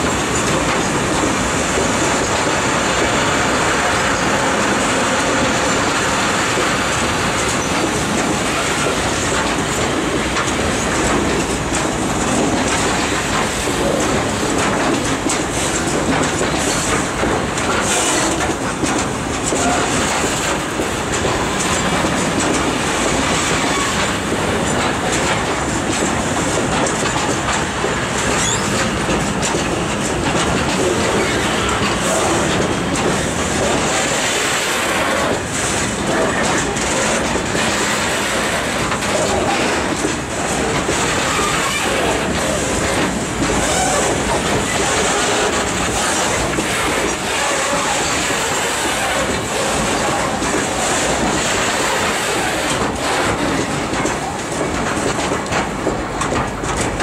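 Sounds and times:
freight train wheels rumbling: 0.0s - 57.0s
high wheel squeal: 28.3s - 28.9s.

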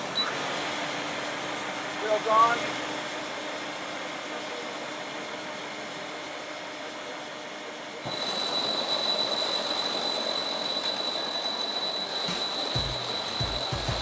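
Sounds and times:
dust extraction vacuum running: 0.0s - 14.0s
rotary hammer drilling concrete: 8.0s - 14.0s.

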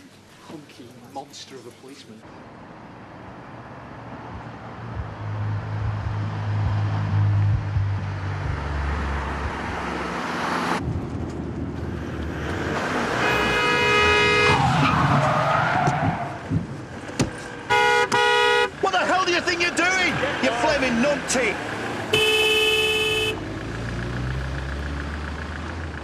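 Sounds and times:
car engine running: 4.3s - 12.6s
vehicle horn blaring: 13.2s - 14.6s, 17.7s - 18.8s, 22.1s - 23.4s.

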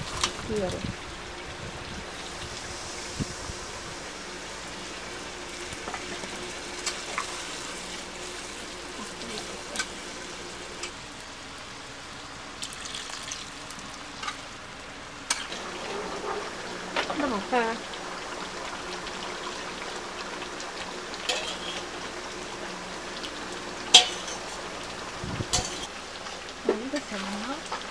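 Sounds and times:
curry sizzling in a pan: 0.0s - 27.9s
metal spatula scraping a pan: 21.3s - 21.9s, 23.9s - 24.6s, 25.5s - 25.9s.

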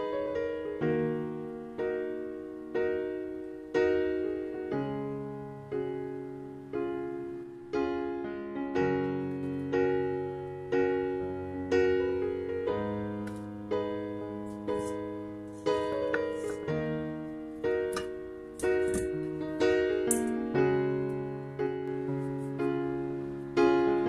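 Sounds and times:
piano chords ringing: 0.0s - 24.0s.

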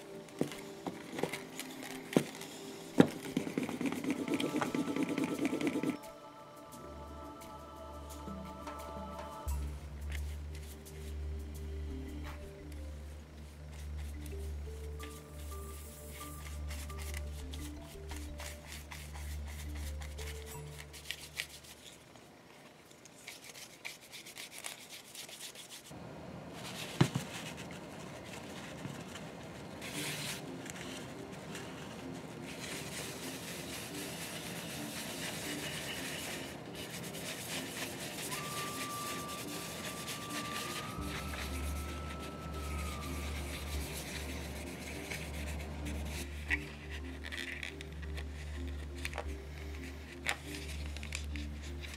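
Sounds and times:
brush and cloth rubbing leather: 0.4s - 6.0s, 15.2s - 22.0s, 23.2s - 26.0s, 29.8s - 49.2s
background music with bass: 6.0s - 18.3s.

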